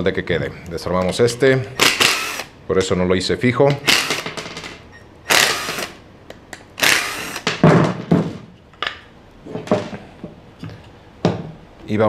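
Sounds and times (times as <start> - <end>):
cordless drill whirring: 1.8 - 2.6, 3.8 - 4.2, 5.3 - 6.0, 6.8 - 7.5
wooden boards knocking: 7.5 - 8.5.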